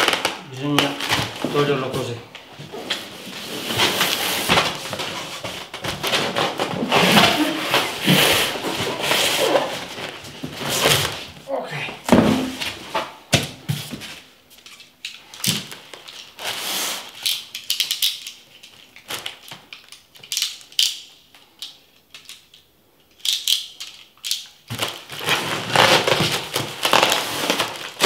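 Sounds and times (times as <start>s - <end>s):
foam rubbing and scraping: 6.8s - 10.0s
packing tape pulled off: 15.4s - 21.0s, 24.3s - 28.0s.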